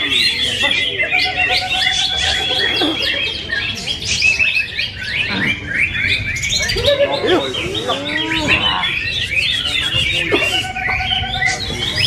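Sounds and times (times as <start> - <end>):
songbirds chorus: 0.0 - 12.0.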